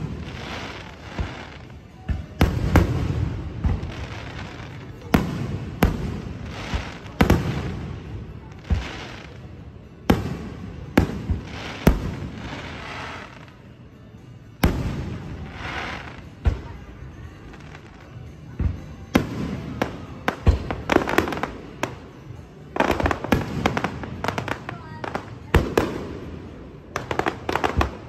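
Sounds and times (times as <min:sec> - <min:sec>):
crackling fizz of firework stars: 0:00.0 - 0:05.2.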